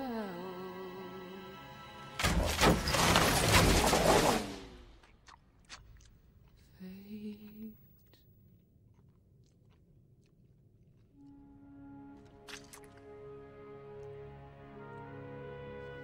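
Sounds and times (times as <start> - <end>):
soft sustained music notes: 0.0 - 2.6, 11.2 - 16.0
man chewing food: 5.0 - 6.8, 7.8 - 11.4.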